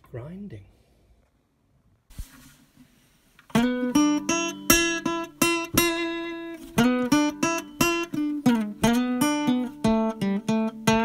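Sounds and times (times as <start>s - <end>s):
plucked acoustic guitar notes: 3.5s - 11.0s.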